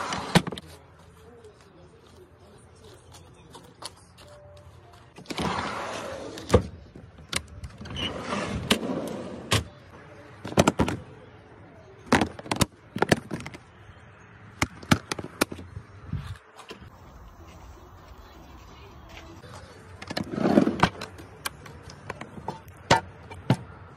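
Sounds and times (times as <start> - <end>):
metal drawer rolling on rails: 5.3 - 6.6, 7.7 - 9.6, 20.1 - 21.0.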